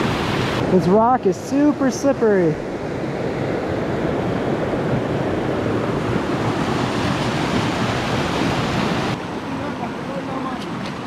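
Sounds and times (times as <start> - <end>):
stream rushing over rocks: 0.0 - 2.6, 5.9 - 11.0.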